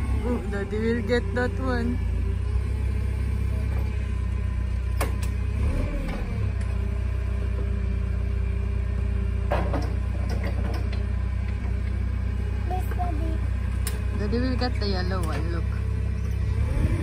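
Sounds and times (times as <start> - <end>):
forklift engine idling: 0.0 - 17.0.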